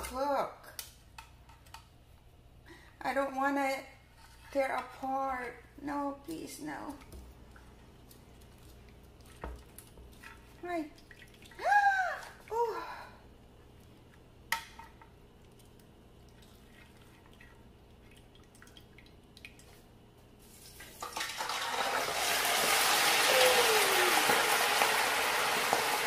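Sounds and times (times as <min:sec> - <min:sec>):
oil sizzling loudly: 0:20.4 - 0:26.0.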